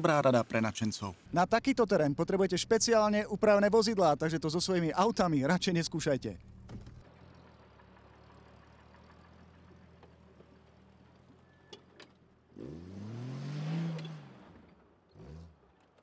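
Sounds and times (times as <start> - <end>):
suv engine revving: 12.5 - 15.8.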